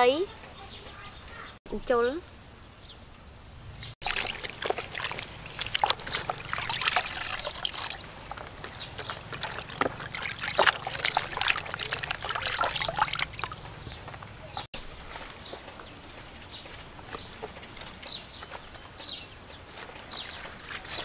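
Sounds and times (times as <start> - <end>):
hands splashing in water: 4.0 - 14.2.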